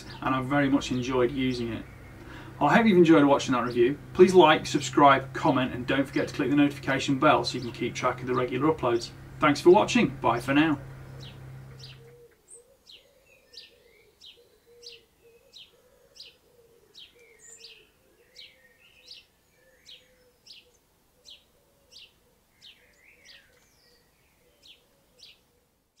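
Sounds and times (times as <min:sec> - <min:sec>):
faint bird chirping: 0:00.0 - 0:05.3, 0:07.2 - 0:26.0
faint low hum: 0:00.0 - 0:12.6.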